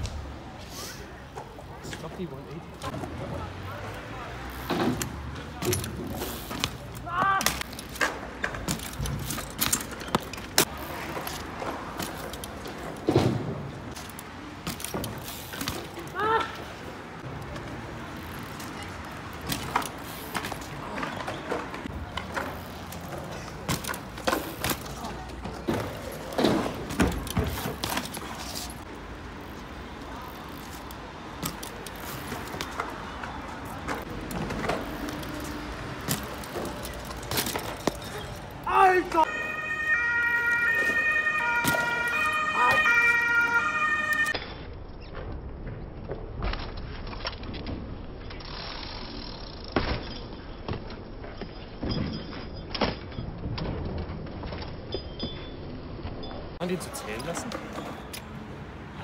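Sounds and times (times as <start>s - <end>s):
bike clattering on concrete: 4.4s - 58.4s
emergency vehicle siren: 39.2s - 44.4s.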